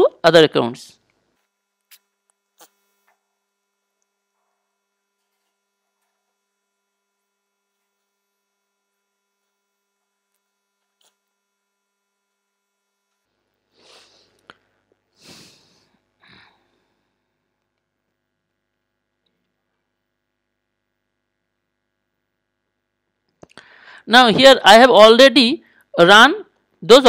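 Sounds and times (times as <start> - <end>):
faint electrical hum: 0.0 - 27.0.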